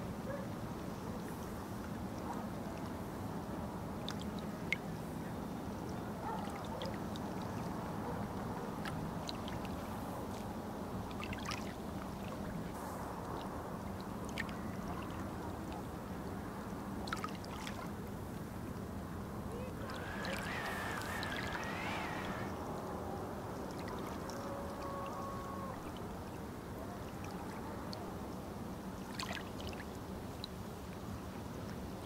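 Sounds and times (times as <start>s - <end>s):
river water lapping: 17.0s - 18.0s, 19.4s - 28.2s, 29.0s - 29.9s.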